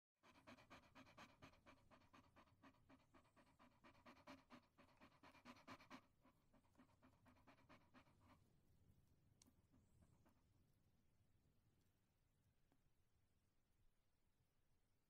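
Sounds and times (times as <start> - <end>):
dog panting: 0.2 - 8.6.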